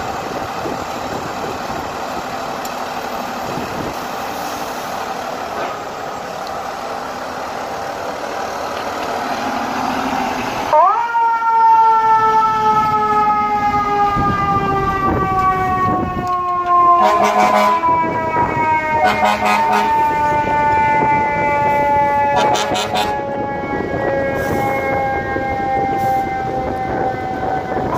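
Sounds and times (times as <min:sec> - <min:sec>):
fire engine diesel engine: 0:00.0 - 0:27.9
mechanical siren wailing: 0:10.6 - 0:27.9
air horn blasts: 0:17.0 - 0:18.0, 0:18.9 - 0:20.2, 0:21.5 - 0:23.3.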